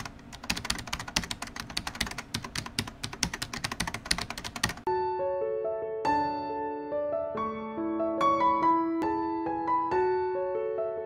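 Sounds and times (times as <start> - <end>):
keyboard typing clicks: 0.0 - 4.9
soft piano notes: 4.8 - 11.0.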